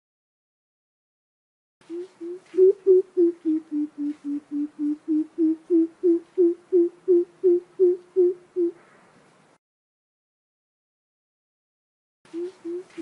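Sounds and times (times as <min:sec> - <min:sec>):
bird deep hooting call: 0:01.9 - 0:08.8, 0:12.3 - 0:13.0.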